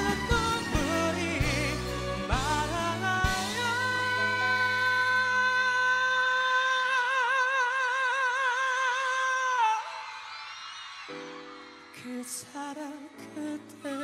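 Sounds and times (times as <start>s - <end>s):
pop ballad backing track: 0.0s - 9.8s
man singing long high note: 0.0s - 10.0s.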